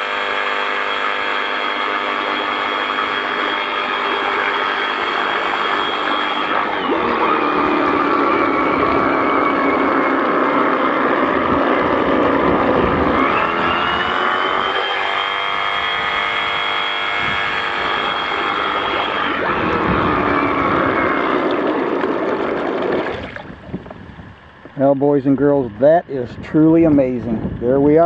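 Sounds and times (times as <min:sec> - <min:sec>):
reciprocating saw motor whine: 0:00.0 - 0:28.0
water splashing: 0:18.1 - 0:23.9.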